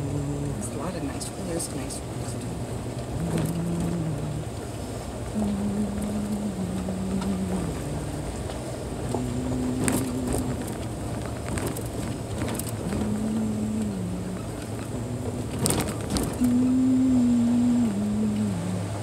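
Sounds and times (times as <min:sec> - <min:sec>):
car engine hum: 0:00.0 - 0:19.0
wind at car window: 0:00.0 - 0:19.0
tyre noise on dirt: 0:09.6 - 0:13.2, 0:15.5 - 0:16.5.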